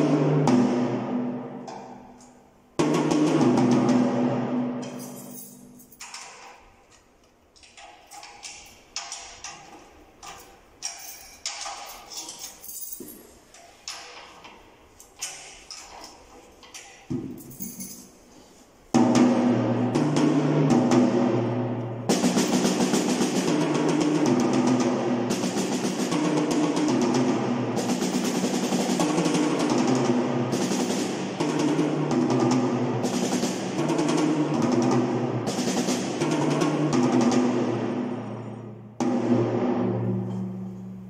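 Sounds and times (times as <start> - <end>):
drum rolls on snare and toms: 0.0 - 2.0, 2.8 - 5.0, 18.9 - 38.4.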